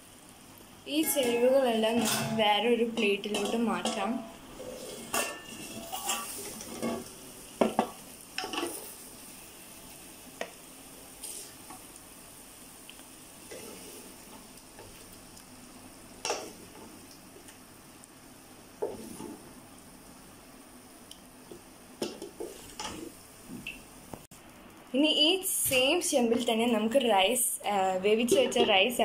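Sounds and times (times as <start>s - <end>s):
wooden spatula scraping steel pot: 1.0s - 7.1s.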